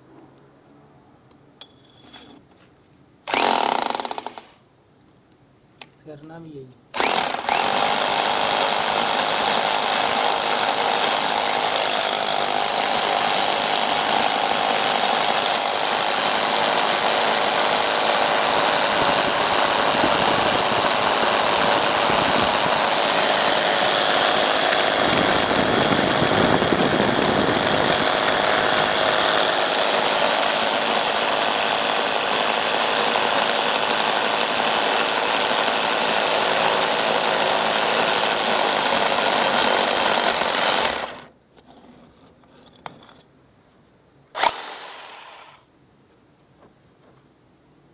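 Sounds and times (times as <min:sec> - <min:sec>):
electric drill boring through wall: 0:03.3 - 0:04.5, 0:07.0 - 0:41.3, 0:44.4 - 0:45.6.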